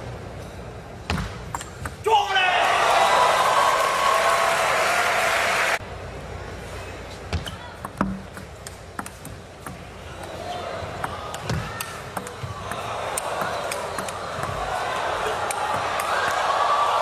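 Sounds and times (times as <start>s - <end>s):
crowd noise: 2.3s - 17.0s
table tennis ball clicks: 7.4s - 9.8s.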